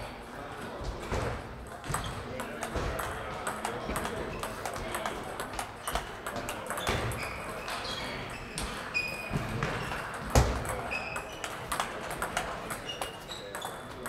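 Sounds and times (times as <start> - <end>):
faint voices: 0.0 - 14.0
table tennis balls clicking: 1.6 - 7.8, 9.5 - 14.0.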